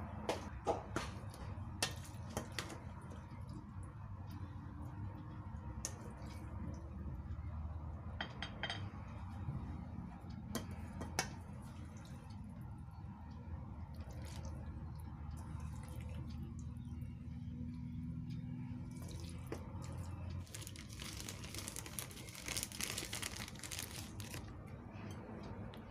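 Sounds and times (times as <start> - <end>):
low steady hum: 0.0 - 25.9
dishes and utensils clinking: 8.2 - 9.0.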